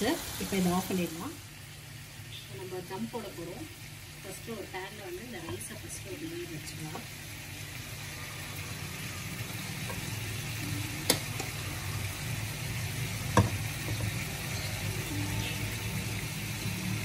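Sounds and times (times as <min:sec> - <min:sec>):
spoon knocking against pot: 0:13.4 - 0:14.1.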